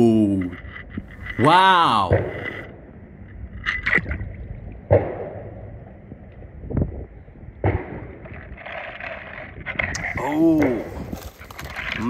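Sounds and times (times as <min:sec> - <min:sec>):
pool water splashing and gurgling: 0:03.6 - 0:05.6.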